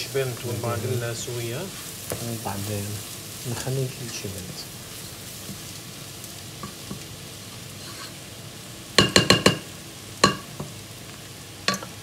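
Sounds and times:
beans sizzling in oil: 0:00.0 - 0:12.0
spoon knocking against pot: 0:09.0 - 0:10.7.

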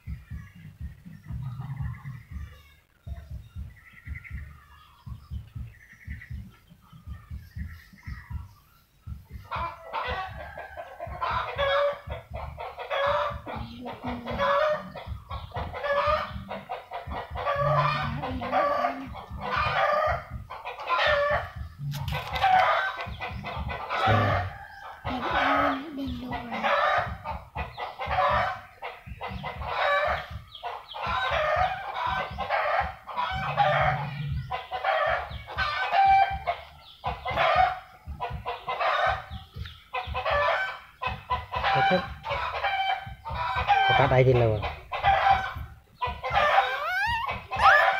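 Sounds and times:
lower longer animal calls: 0:17.4 - 0:20.3, 0:23.9 - 0:27.1, 0:45.3 - 0:47.9
short animal calls: 0:46.2 - 0:47.9.

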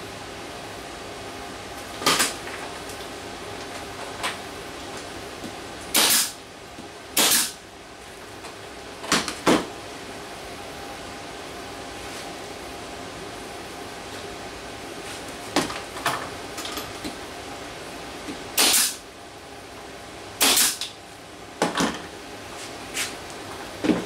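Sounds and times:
nail gun shots with air hiss: 0:02.0 - 0:02.4, 0:05.9 - 0:06.4, 0:07.2 - 0:07.6, 0:18.6 - 0:19.0, 0:20.4 - 0:20.9.

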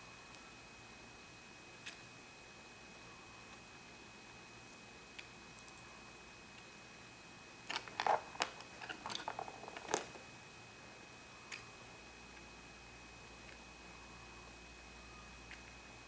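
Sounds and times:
plastic toy pieces clicking: 0:07.7 - 0:10.2.

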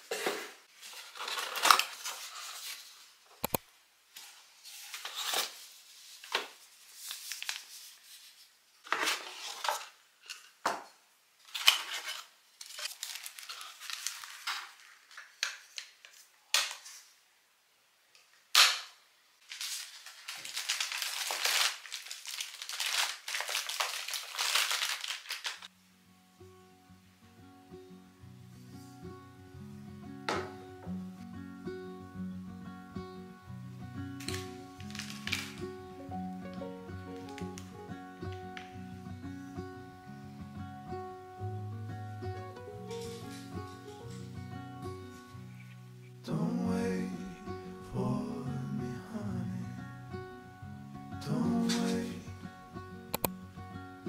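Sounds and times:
cardboard and paper rustling: 0:00.0 - 0:03.2, 0:04.1 - 0:10.5, 0:11.4 - 0:17.1, 0:19.4 - 0:25.7, 0:34.2 - 0:35.7, 0:42.9 - 0:44.1.

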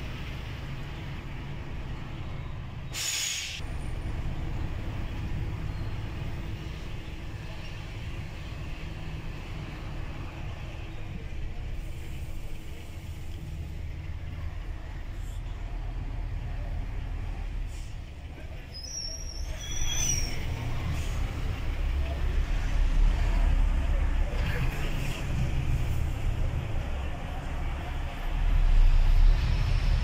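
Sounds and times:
air brake hiss: 0:02.9 - 0:03.6.

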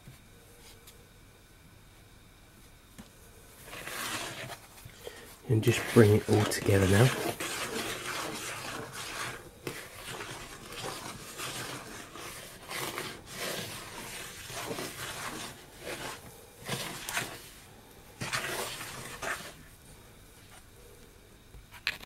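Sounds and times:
spoon stirring dough in bowl: 0:03.6 - 0:17.6, 0:18.2 - 0:19.7.

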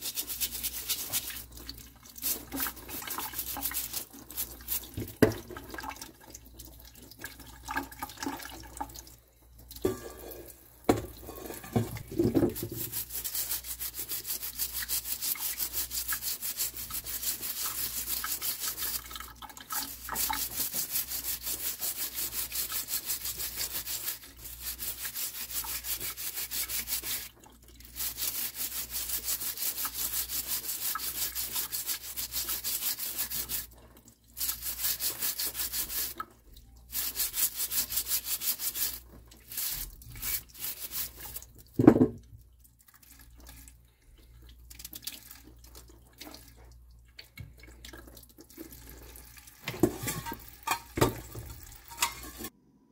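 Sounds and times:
brush scrubbing wet vegetables: 0:00.0 - 0:06.0, 0:11.3 - 0:41.8, 0:48.5 - 0:52.5.

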